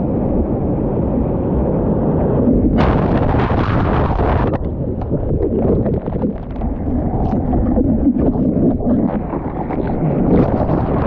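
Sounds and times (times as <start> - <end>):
water splashing: 2.5 - 11.0.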